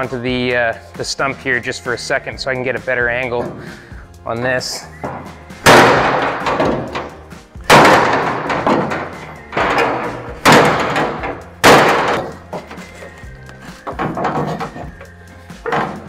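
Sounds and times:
heavy hammer blows on sheet steel: 5.7s - 13.0s.

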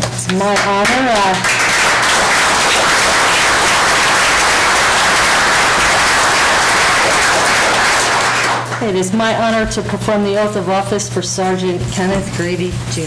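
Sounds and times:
crowd applauding: 0.4s - 8.8s.

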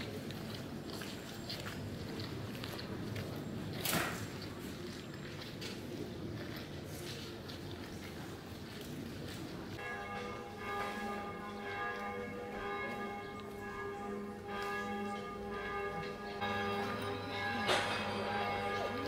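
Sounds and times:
church bells ringing: 9.8s - 19.0s.

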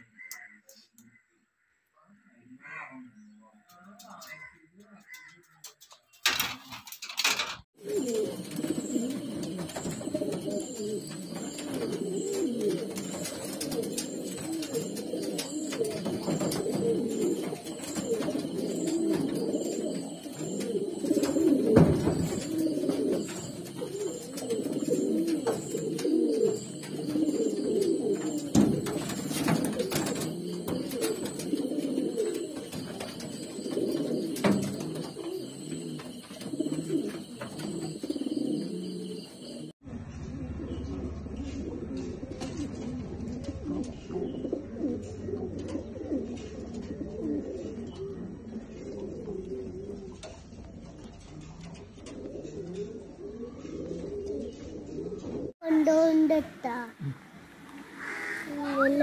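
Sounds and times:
pigeons cooing: 3.1s - 55.6s, 57.1s - 59.0s.

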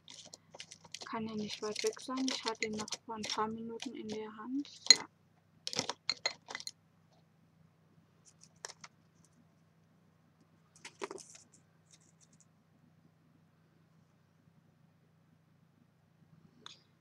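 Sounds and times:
craft tools clicking and clattering: 5.7s - 6.7s.

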